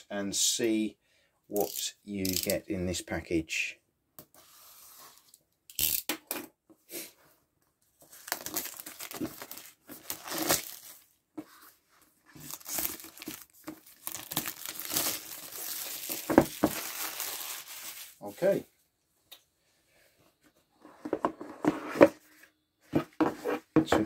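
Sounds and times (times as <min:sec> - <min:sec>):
plastic wrap crinkling: 0:08.1 - 0:11.2, 0:12.3 - 0:18.4
plastic shrink wrap tearing: 0:08.2 - 0:11.1, 0:12.4 - 0:18.3.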